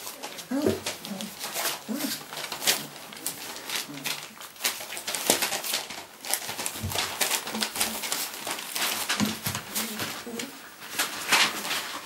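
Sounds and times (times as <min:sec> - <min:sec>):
puppies squeaking and grunting: 0:00.0 - 0:08.7
paws scratching on bedding: 0:00.0 - 0:12.0.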